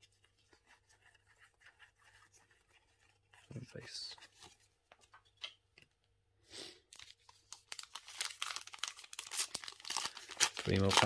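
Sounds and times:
wrapper crinkling and tearing: 6.9s - 11.0s.

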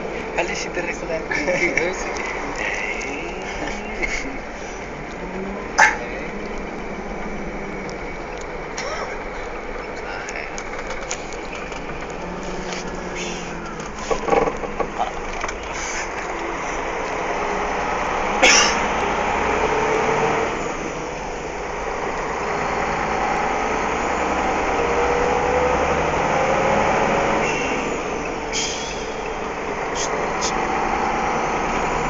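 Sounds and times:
road noise: 0.0s - 32.0s
truck engine: 0.0s - 32.0s.

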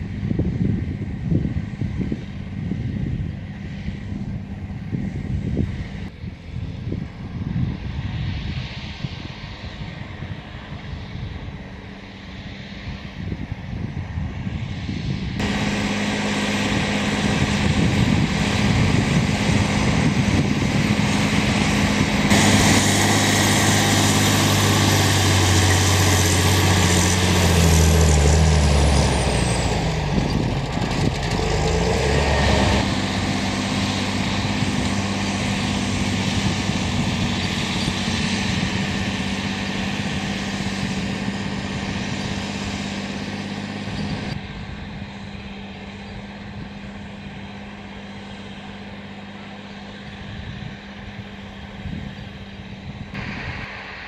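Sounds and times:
tractor diesel engine running: 15.4s - 54.0s.

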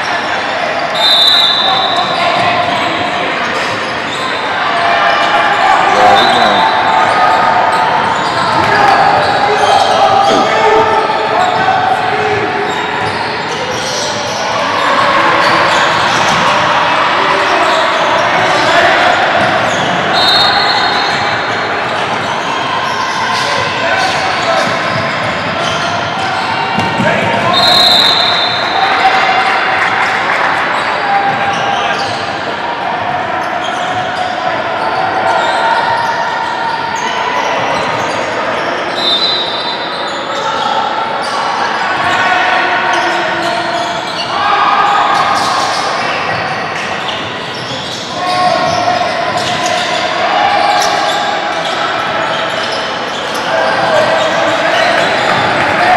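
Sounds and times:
shoe squeaks: 0.9s - 4.5s, 12.7s - 14.4s, 47.0s - 50.0s.

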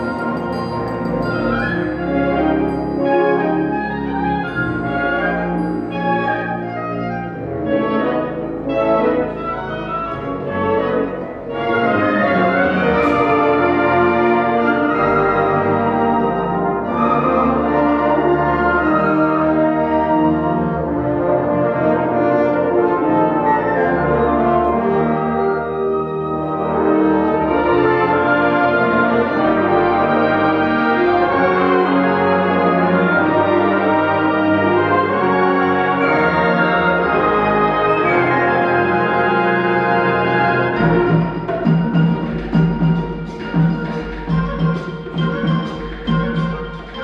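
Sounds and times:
wind band playing concert music: 0.0s - 47.0s.

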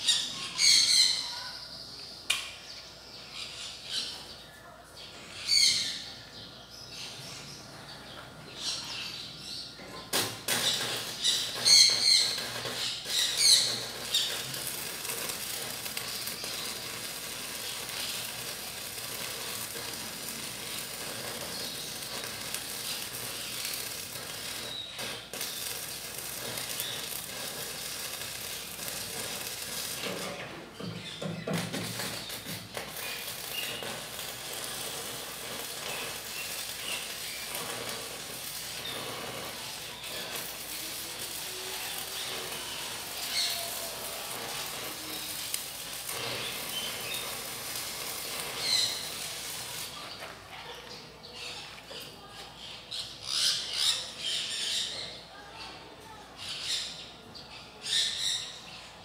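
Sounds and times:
birds calling: 0.0s - 51.8s
welding arc crackling: 10.1s - 50.5s.

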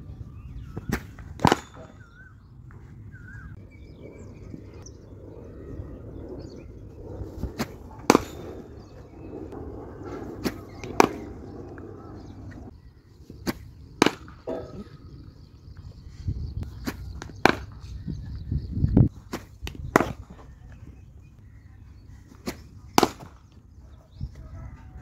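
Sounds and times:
cricket bat hitting ball: 0.9s - 2.2s, 7.6s - 8.8s, 10.4s - 11.4s, 13.5s - 14.8s, 16.8s - 17.8s, 19.3s - 20.3s, 22.5s - 23.4s.

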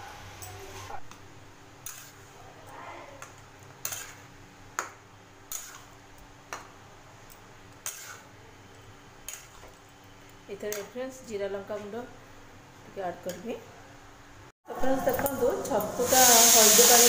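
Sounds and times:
metal spatula scraping pot: 3.8s - 4.2s, 5.5s - 5.9s, 7.8s - 8.3s.

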